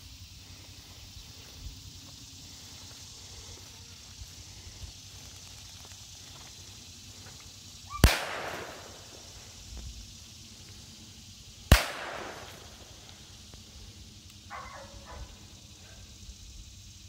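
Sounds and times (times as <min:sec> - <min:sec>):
gunshots with echo: 0:08.0 - 0:09.0, 0:11.7 - 0:12.7.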